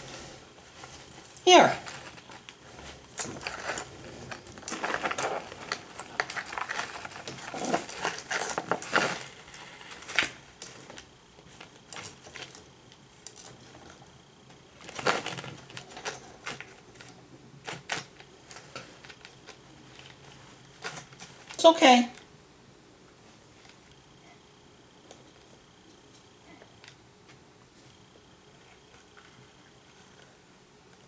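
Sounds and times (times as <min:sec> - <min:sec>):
lizard scrambling: 0:00.0 - 0:11.0
plastic bags rustling: 0:00.0 - 0:12.6, 0:14.7 - 0:21.6.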